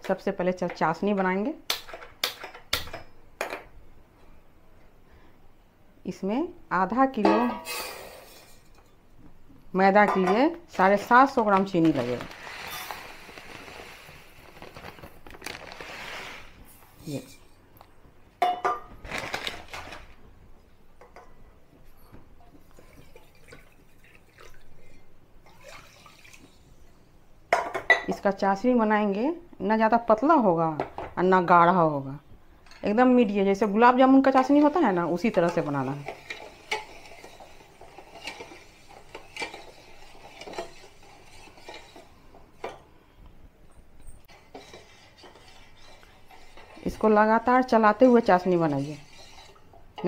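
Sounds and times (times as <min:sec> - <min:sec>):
water dripping and splashing: 0:22.6 - 0:26.7
water pouring into a pan: 0:25.4 - 0:26.7
utensil scraping and clinking pan: 0:35.2 - 0:42.1, 0:44.2 - 0:47.2, 0:47.9 - 0:49.7.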